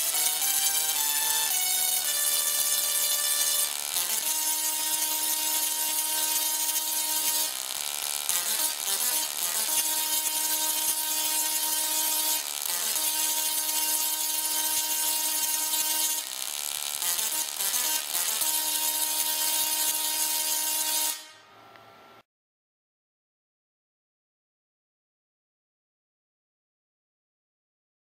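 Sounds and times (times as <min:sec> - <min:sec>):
tesla coil playing buzzing notes: 0:00.0 - 0:22.2.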